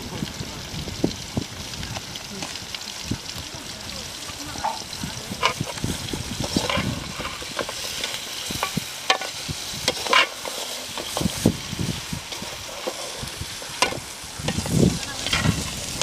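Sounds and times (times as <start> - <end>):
frying sizzle: 0.0 - 16.0
metal skimmer scraping a pan: 4.6 - 16.0.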